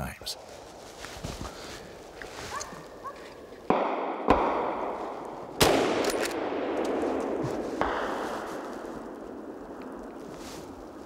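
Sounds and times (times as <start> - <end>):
rifle shots echoing: 3.7 - 10.0.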